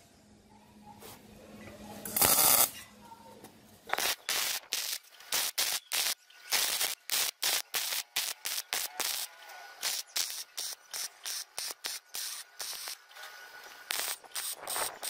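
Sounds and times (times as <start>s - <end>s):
welder crackling: 2.0s - 2.8s, 3.9s - 15.0s.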